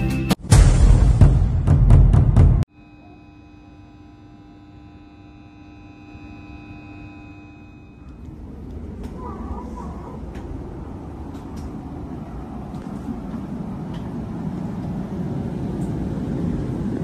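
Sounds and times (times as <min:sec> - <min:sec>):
electric train humming: 0:02.6 - 0:17.0
low rumble inside train: 0:06.3 - 0:17.0.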